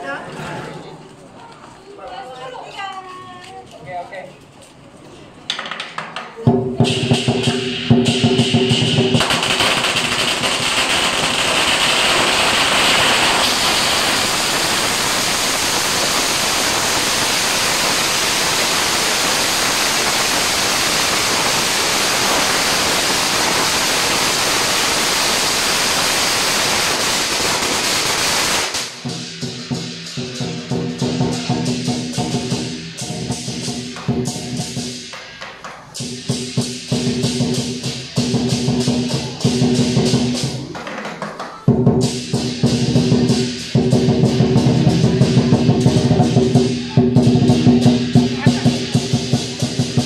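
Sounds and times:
firecrackers crackling: 5.5 - 50.0
drum: 5.6 - 50.0
cymbals: 6.4 - 40.8, 41.6 - 50.0.

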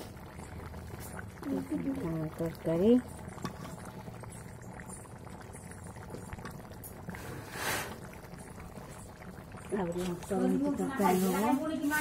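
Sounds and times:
curry bubbling and popping: 0.0 - 12.0
short hiss: 7.4 - 8.0.

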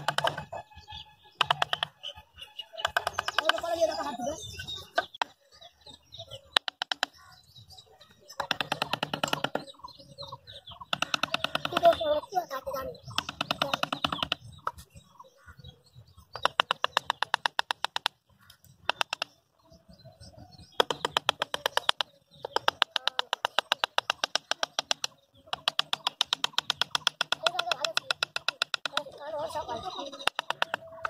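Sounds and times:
rapid even clicking: 1.4 - 2.0, 8.4 - 9.7, 10.8 - 12.2, 13.0 - 14.8, 16.4 - 19.4, 20.8 - 31.0.

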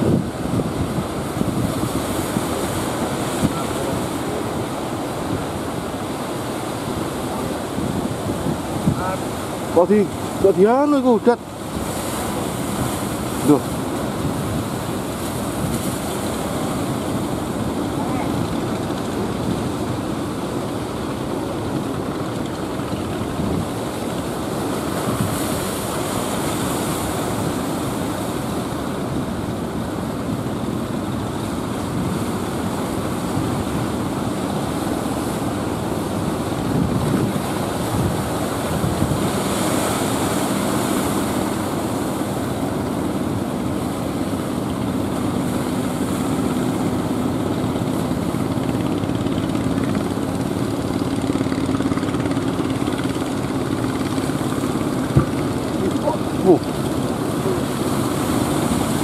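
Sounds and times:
wind on microphone: 0.0 - 10.8, 11.4 - 59.0
boat engine drone: 0.0 - 59.0
surf breaking: 31.6 - 59.0.

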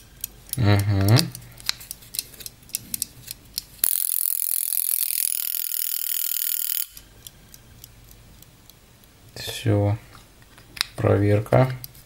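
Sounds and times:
timer ratcheting buzz: 3.8 - 7.1.

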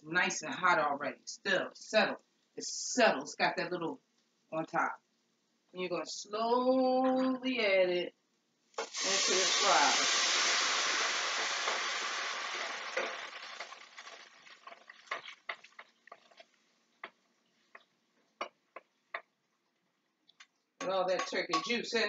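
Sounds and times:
stock sizzling in a hot pan: 8.7 - 16.6
pops and crackles: 11.6 - 18.0.

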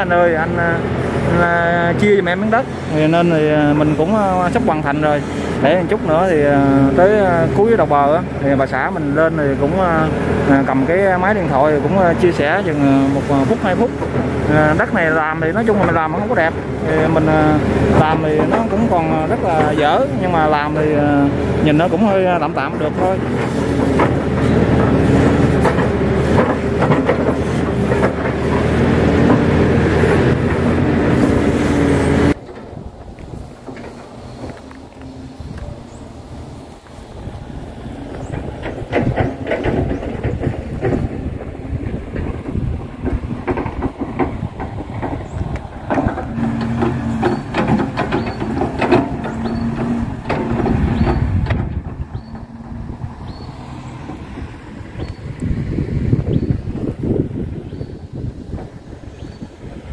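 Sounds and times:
excavator diesel engine: 0.0 - 59.9
hydraulics whining: 0.0 - 59.9
wind on microphone: 11.8 - 59.9
scattered knocks: 13.5 - 34.7, 37.7 - 59.5.

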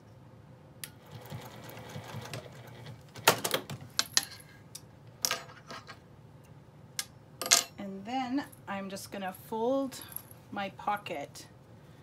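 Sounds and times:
sewing machine running: 1.0 - 3.0.

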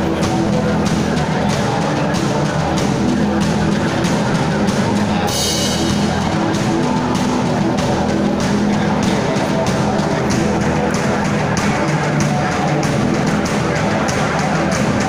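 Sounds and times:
live rock band: 0.0 - 15.0.

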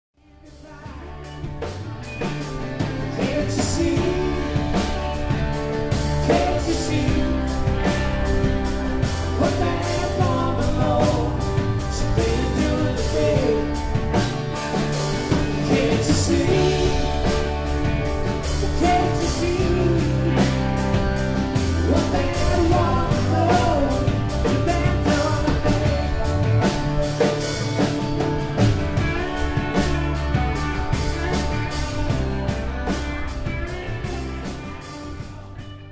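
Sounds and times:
man singing: 0.2 - 1.5, 2.7 - 5.4, 6.0 - 14.2, 15.3 - 17.8, 18.4 - 27.9
electric guitars: 0.2 - 35.9
drum kit steady beat: 0.4 - 35.9.

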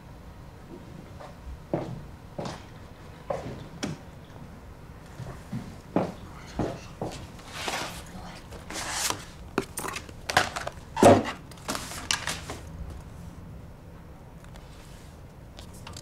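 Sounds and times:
paper sheets rustling: 7.3 - 12.7.

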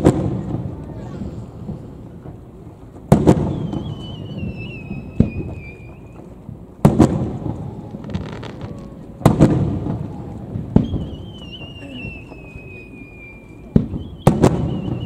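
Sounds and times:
faint firework crackle: 0.0 - 15.0
firework shells bursting: 0.0 - 15.0
firework whistle: 3.1 - 15.0.

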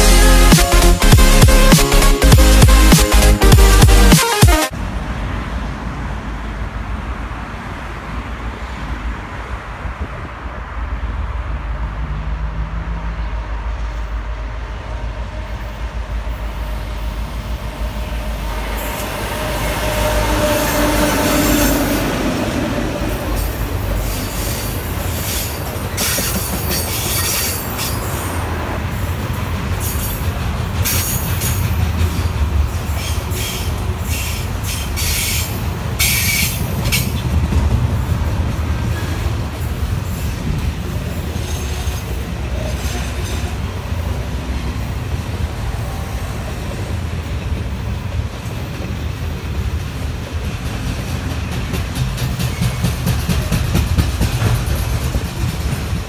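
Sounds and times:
diesel locomotive rumble: 4.7 - 56.0
train wheels clattering over rail joints: 23.3 - 28.2, 29.1 - 43.7, 47.4 - 56.0.

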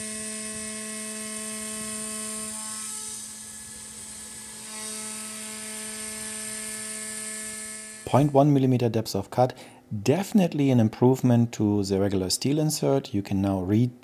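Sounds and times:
mill spindle whine: 0.0 - 8.1.

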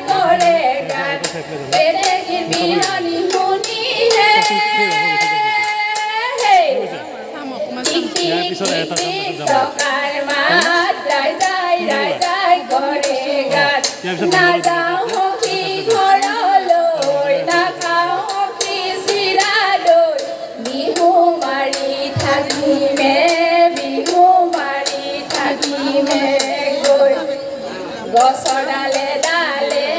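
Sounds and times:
women singing folk song: 0.0 - 7.0, 7.8 - 29.9.

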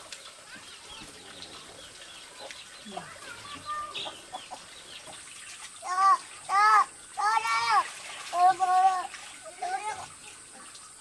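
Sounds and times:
small birds chirping: 0.1 - 11.0
chickens clucking: 0.5 - 7.3.

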